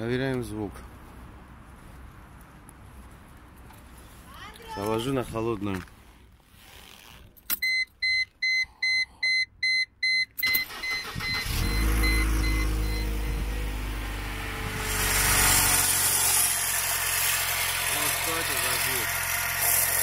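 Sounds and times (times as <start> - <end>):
electronic warning beeps: 7.6 - 13.6
car engine cranking and idling: 10.4 - 20.0.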